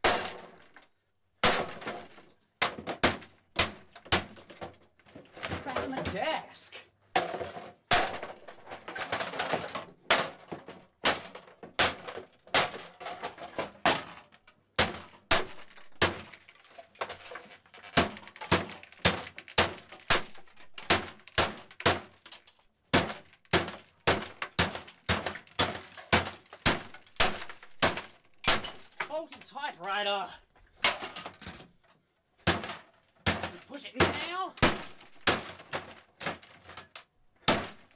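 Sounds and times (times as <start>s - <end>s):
plastic cracking and breaking: 0.0s - 6.2s, 7.1s - 30.0s, 30.7s - 37.9s.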